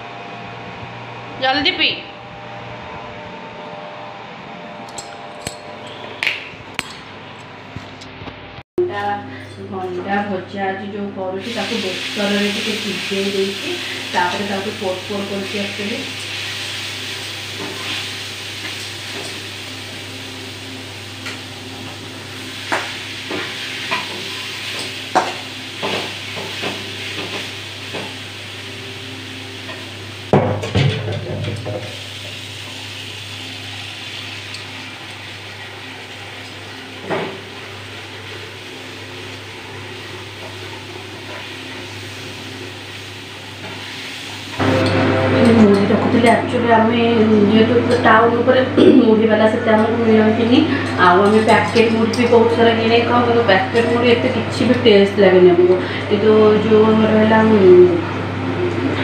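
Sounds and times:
okra sizzling in a pan: 0:11.4 - 0:30.3, 0:31.8 - 0:45.5.

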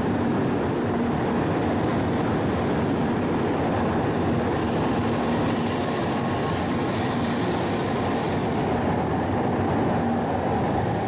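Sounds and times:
train wheels rumbling: 0:00.0 - 0:11.0
high hiss: 0:04.7 - 0:09.1.

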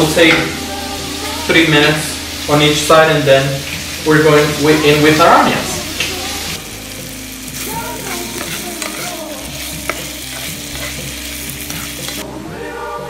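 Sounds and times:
chicken sizzling in oil: 0:00.0 - 0:12.3
spatula scraping pan: 0:07.7 - 0:12.2.

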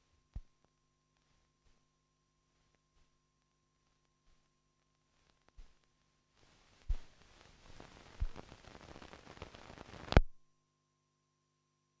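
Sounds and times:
crackling static hiss: 0:00.0 - 0:10.6
faint hum: 0:00.0 - 0:12.0.

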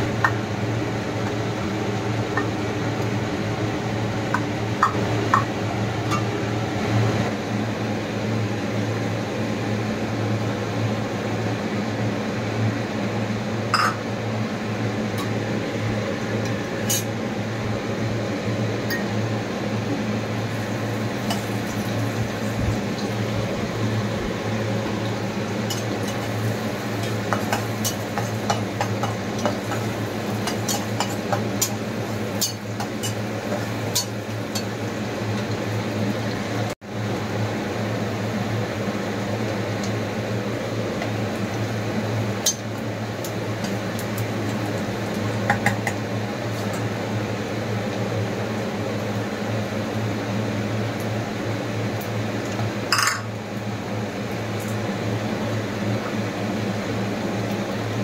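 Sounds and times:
onions frying in oil: 0:00.0 - 0:58.0
steady low hum: 0:00.0 - 0:58.0.

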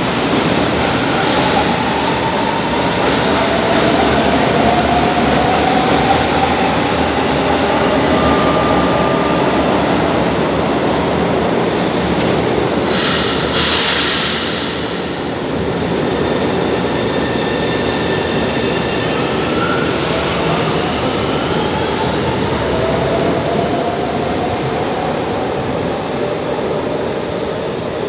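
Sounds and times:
air hiss burst: 0:12.8 - 0:15.2.

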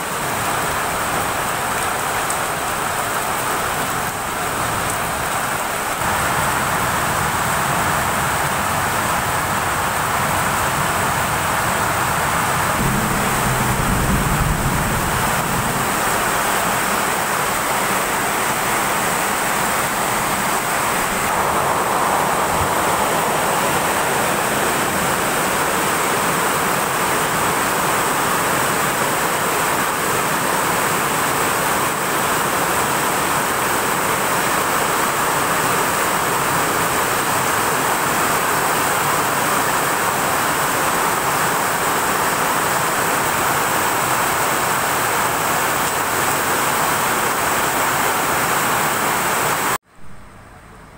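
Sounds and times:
heavy rain pouring: 0:00.0 - 0:50.4.

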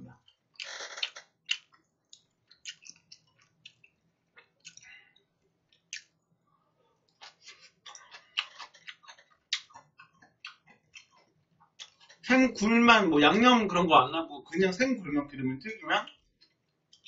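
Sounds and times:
chewing: 0:00.2 - 0:06.2, 0:06.9 - 0:12.3, 0:16.0 - 0:17.0.

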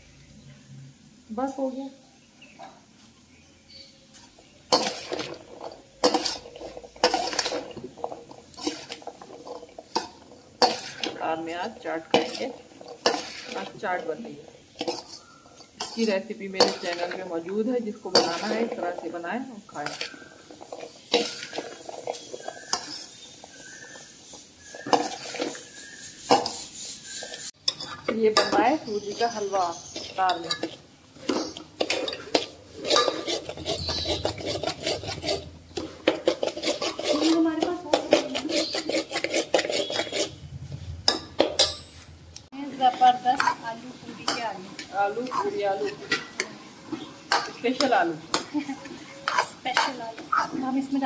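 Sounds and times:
spoon scraping metal bowl: 0:04.7 - 0:42.2, 0:42.9 - 0:43.6, 0:44.2 - 0:51.0
spoon clinking on steel bowl: 0:41.1 - 0:42.0, 0:49.2 - 0:50.5.

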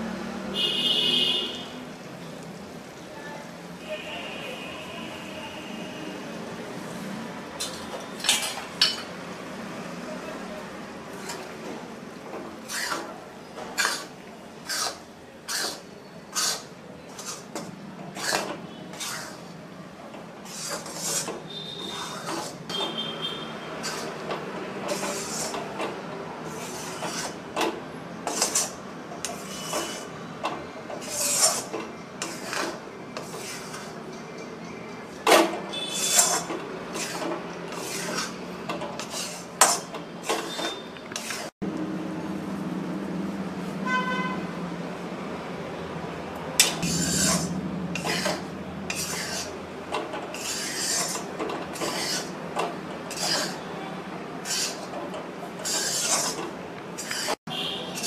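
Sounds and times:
spatula scraping dry flour in pan: 0:11.1 - 0:11.6, 0:12.6 - 0:19.6, 0:20.4 - 0:23.1, 0:23.8 - 0:25.9, 0:26.5 - 0:27.5, 0:28.2 - 0:30.2, 0:31.0 - 0:34.1, 0:35.8 - 0:41.5, 0:46.6 - 0:53.8, 0:54.4 - 0:58.0.

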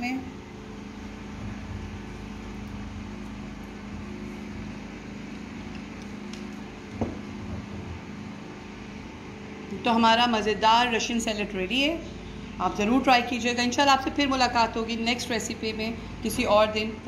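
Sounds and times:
machine hum: 0:00.0 - 0:17.0.

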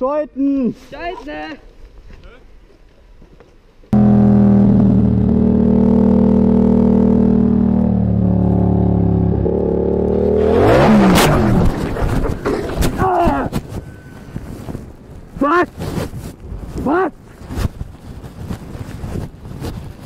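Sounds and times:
motorcycle engine running: 0:04.0 - 0:14.0
clatter: 0:09.4 - 0:14.0.

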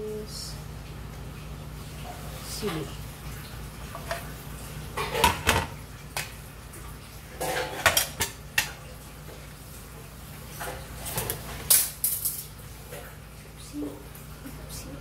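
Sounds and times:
metal utensils and dishes clattering: 0:05.0 - 0:05.7, 0:07.4 - 0:08.8, 0:10.6 - 0:12.5.

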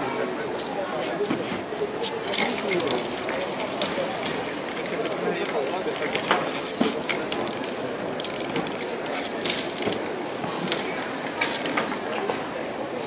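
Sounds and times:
murmur of street crowd: 0:00.0 - 0:13.0
spray can hissing: 0:02.5 - 0:06.2.

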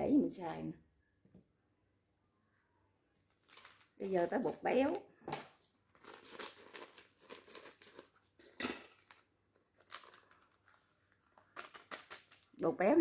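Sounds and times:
plastic bag crinkling: 0:03.2 - 0:12.6.

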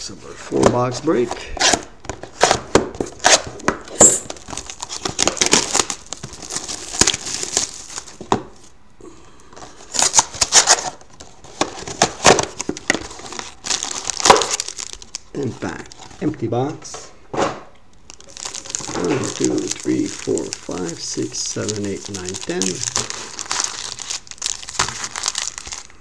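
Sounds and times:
shrink-wrap crinkling and ripping: 0:01.6 - 0:08.7, 0:09.6 - 0:16.2, 0:18.1 - 0:26.0
foil packs rustling: 0:04.2 - 0:08.7, 0:09.6 - 0:16.2, 0:18.1 - 0:26.0.

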